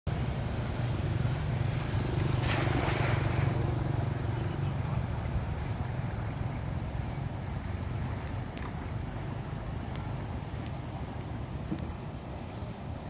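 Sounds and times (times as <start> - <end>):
steady low rumble: 0.1 - 13.0
net splashing on water: 1.6 - 4.0.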